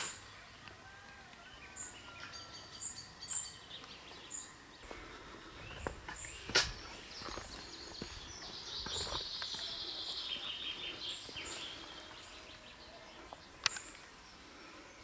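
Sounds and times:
birds singing and chirping: 0.0 - 15.0.

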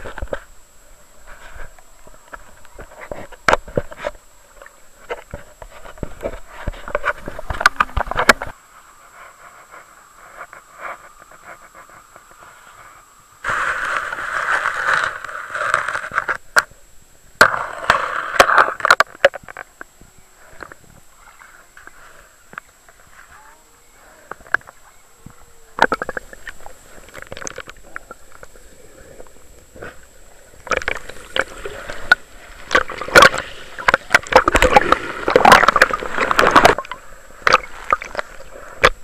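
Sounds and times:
underwater clicks and knocks: 2.3 - 8.5, 25.8 - 28.5, 30.6 - 39.0
rushing bubbling water: 25.8 - 39.0.

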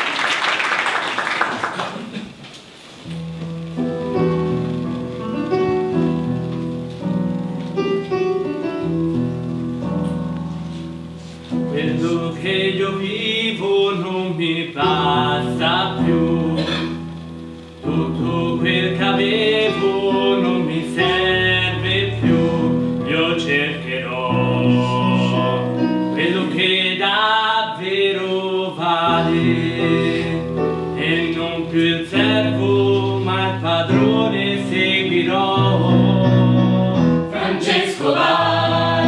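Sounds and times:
applause: 0.0 - 2.4
stage piano chords: 0.0 - 39.0
mixed choir singing: 11.7 - 17.0, 17.8 - 39.0.

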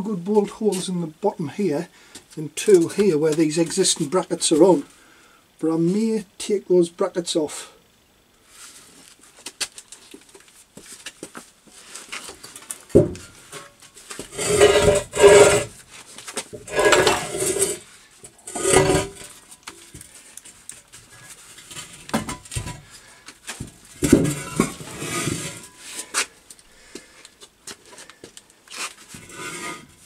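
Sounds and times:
metal scraping on concrete: 12.9 - 15.8, 16.5 - 19.4, 24.0 - 26.2, 29.1 - 30.0.

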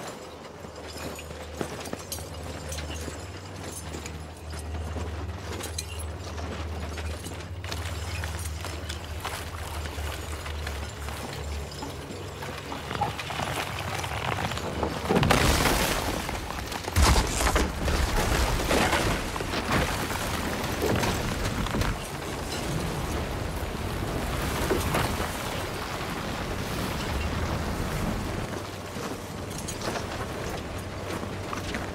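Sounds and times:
heavy chains: 0.0 - 15.2
ice cracking and breaking: 12.6 - 22.7
scraping on ice: 12.8 - 22.1.

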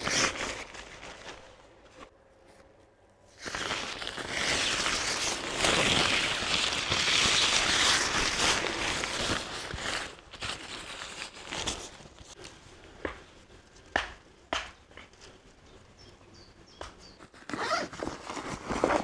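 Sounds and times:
tarp rustling and crinkling: 0.0 - 12.6, 17.2 - 19.0.

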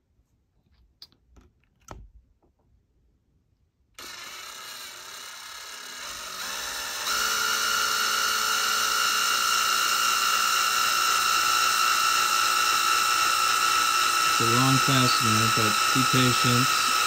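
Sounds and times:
cordless drill driving screw: 4.0 - 17.0.

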